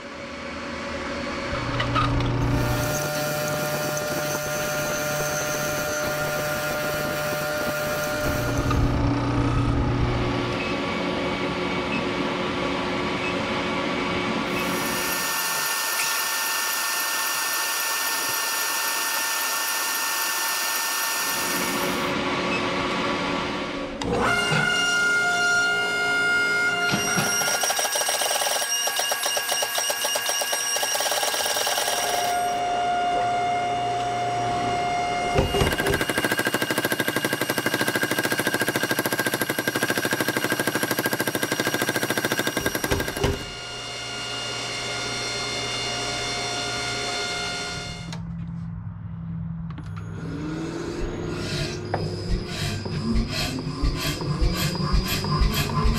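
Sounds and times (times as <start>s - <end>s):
steady machine hum: 0.0s - 15.5s, 31.2s - 48.1s
induction forge high whine: 0.0s - 24.6s, 28.4s - 48.2s
power hammer pounding metal: 35.4s - 43.6s.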